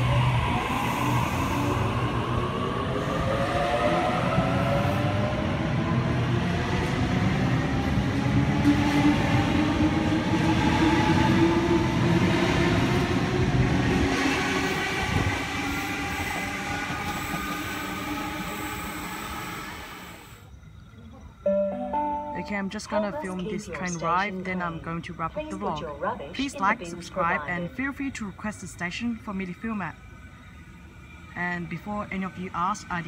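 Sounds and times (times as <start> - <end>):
train rumble: 0.0 - 20.4.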